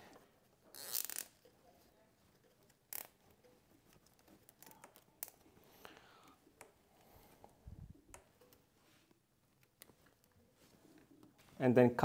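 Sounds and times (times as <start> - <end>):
light clicks and handling: 0.0 - 11.6
zip tie zipping rasp: 0.7 - 1.3.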